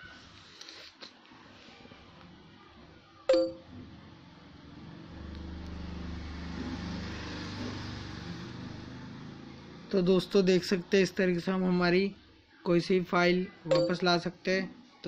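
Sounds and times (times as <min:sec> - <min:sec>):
phone notification chime: 0:03.3 - 0:03.7, 0:13.7 - 0:14.1.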